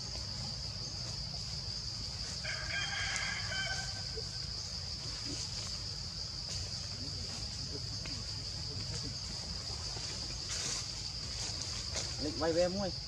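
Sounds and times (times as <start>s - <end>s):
high-pitched insect drone: 0.0s - 13.0s
rooster crowing: 2.4s - 4.3s.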